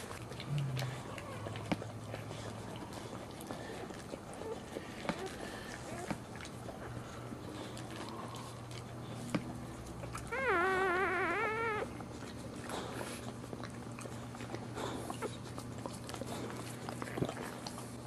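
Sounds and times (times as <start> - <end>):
wet licking clicks: 0.0 - 6.8
puppy crying: 10.1 - 12.0.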